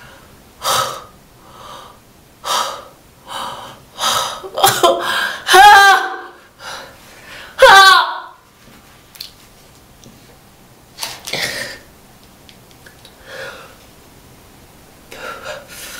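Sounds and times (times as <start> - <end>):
woman crying out in pain: 4.7 - 6.4
woman gasping breaths: 13.2 - 13.8.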